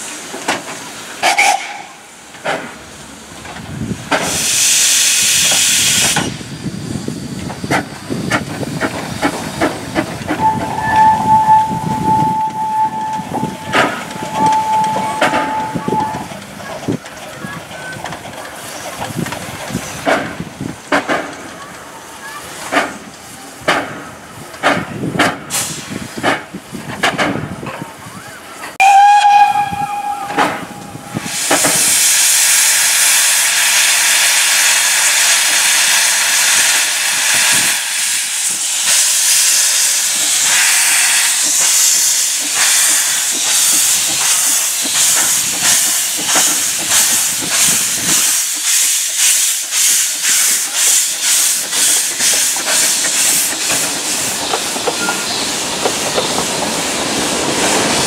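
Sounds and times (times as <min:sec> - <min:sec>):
steam locomotive whistle: 0:01.2 - 0:02.1, 0:10.3 - 0:16.3, 0:28.8 - 0:38.3
locomotive exhaust beats: 0:05.5 - 0:18.2
steam hissing from drain cocks: 0:25.5 - 0:26.1, 0:30.2 - 0:58.0.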